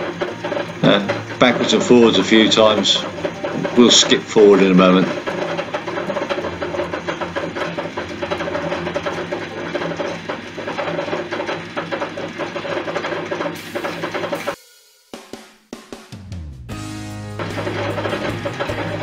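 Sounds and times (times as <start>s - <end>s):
metal lathe cutting: 0.0s - 14.6s, 16.8s - 19.0s.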